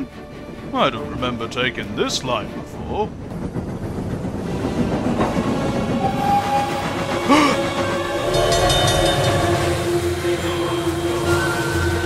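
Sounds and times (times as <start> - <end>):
train rumbling on rails: 0.0 - 12.0
steady held tones: 8.0 - 10.2.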